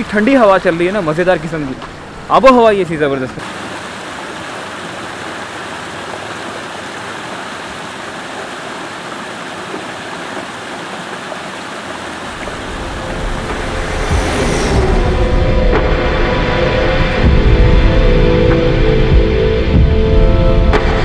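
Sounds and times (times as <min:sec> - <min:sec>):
stream rushing over rocks: 0:00.0 - 0:17.2
deep rumble: 0:12.2 - 0:21.0
rising whoosh: 0:12.3 - 0:19.4.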